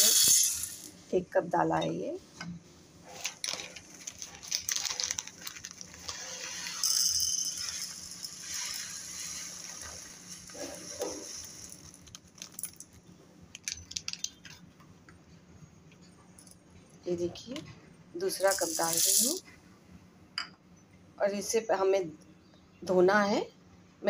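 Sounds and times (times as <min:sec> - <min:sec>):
dry pearls pouring into cup: 0:00.0 - 0:01.0, 0:03.4 - 0:14.4, 0:18.3 - 0:19.4
plastic packet rustling: 0:03.1 - 0:06.9, 0:07.7 - 0:14.5.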